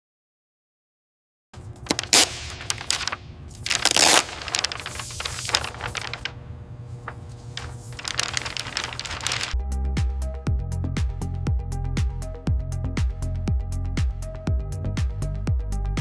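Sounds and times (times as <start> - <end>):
steady low hum: 1.6 - 9.6.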